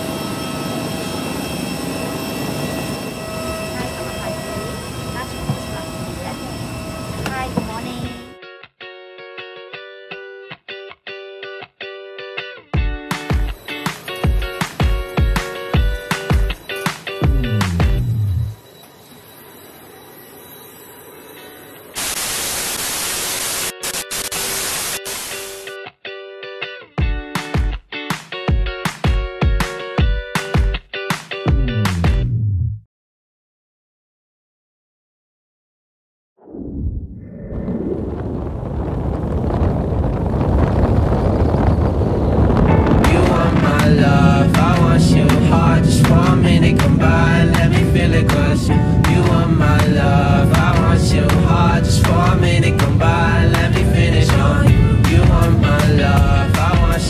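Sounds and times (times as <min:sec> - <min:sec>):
jet airliner whine and roar: 0:00.0 - 0:08.4, 0:13.3 - 0:25.7, 0:36.5 - 0:57.0
tv static hiss: 0:21.9 - 0:25.8.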